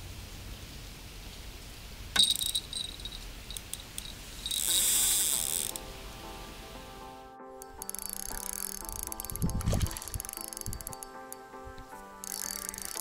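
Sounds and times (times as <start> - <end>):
bite indicator clicking and rattling: 2.2 - 5.8, 7.6 - 11.5, 12.2 - 13.0
music: 4.5 - 13.0.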